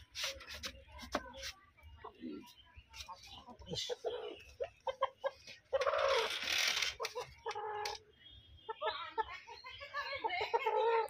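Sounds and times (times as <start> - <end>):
rooster clucking: 3.2 - 8.0, 10.0 - 11.0.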